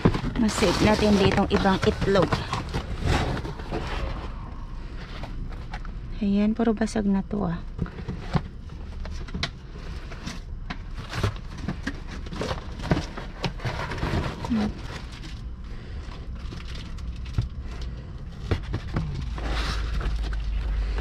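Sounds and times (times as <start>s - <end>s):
cardboard rustling and scraping: 0.0s - 5.9s, 7.8s - 21.0s.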